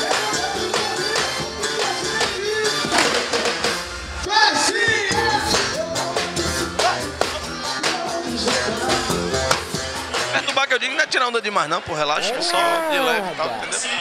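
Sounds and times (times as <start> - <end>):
drum kit: 0.0 - 10.4
guitar: 0.0 - 10.7.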